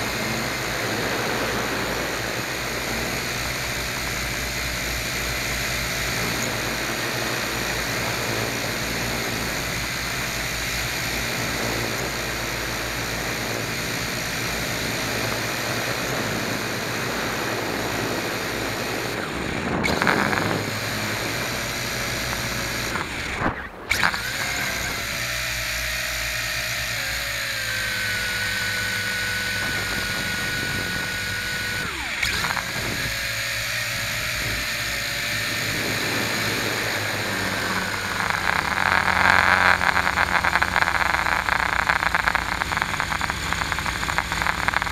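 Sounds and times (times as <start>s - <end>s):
wind rushing over microphone: 0.0s - 25.5s, 28.2s - 44.9s
model aircraft motor and propeller: 0.0s - 44.9s.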